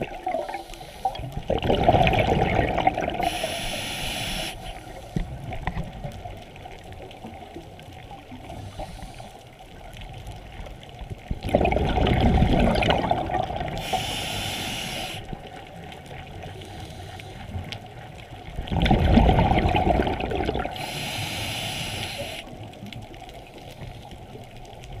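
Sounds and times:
exhaled bubbles rushing underwater: 0:00.0 - 0:03.5, 0:09.8 - 0:14.2, 0:17.8 - 0:21.0
scuba regulator hissing: 0:03.2 - 0:04.9, 0:13.8 - 0:15.2, 0:20.8 - 0:22.5.

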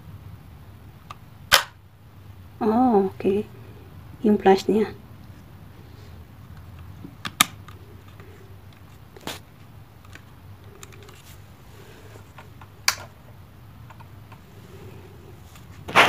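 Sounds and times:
handling rustle: 0:05.2 - 0:13.2.

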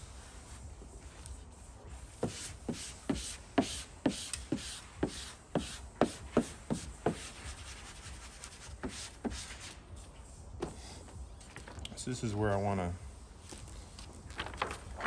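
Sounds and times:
squeegee rubbing on vinyl: 0:00.0 - 0:11.1.

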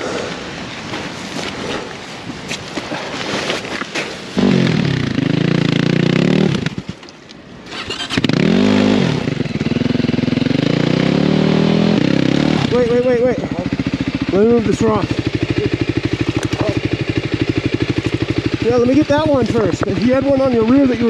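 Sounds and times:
motorcycle engine revving: 0:04.3 - 0:07.0, 0:07.6 - 0:21.0
gravel clattering: 0:15.0 - 0:21.0.

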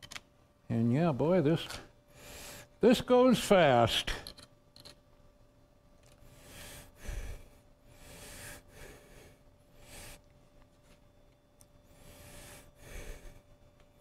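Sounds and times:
faint steady hum: 0:00.0 - 0:14.0
person breathing softly: 0:06.3 - 0:10.3, 0:11.9 - 0:13.6.

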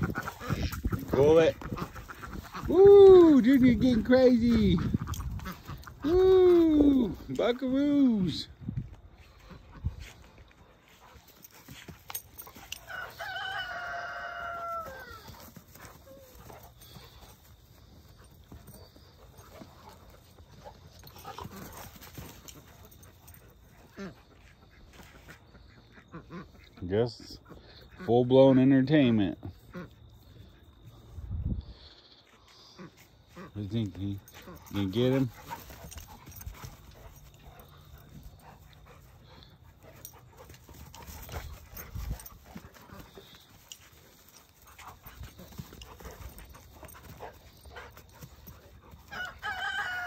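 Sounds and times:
dogs panting: 0:00.0 - 0:08.2, 0:08.9 - 0:13.9, 0:14.8 - 0:50.0
quiet outdoor background: 0:00.0 - 0:50.0.

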